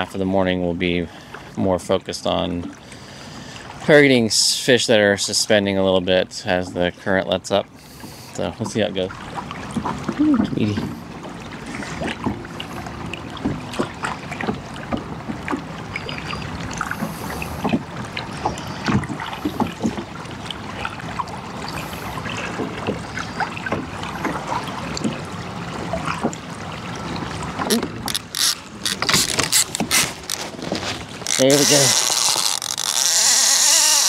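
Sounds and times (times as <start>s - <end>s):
water slapping against kayak hull: 7.9s - 34.0s.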